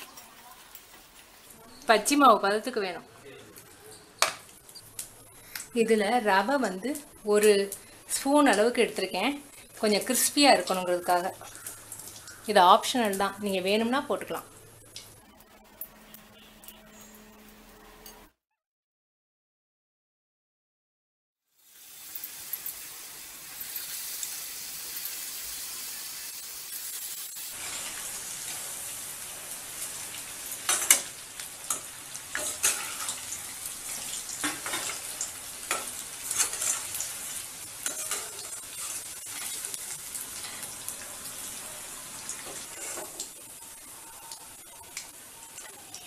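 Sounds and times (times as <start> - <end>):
food deep-frying in oil: 0.0 - 18.2, 21.4 - 46.0
metal spoon clinking on pan: 37.8 - 38.9.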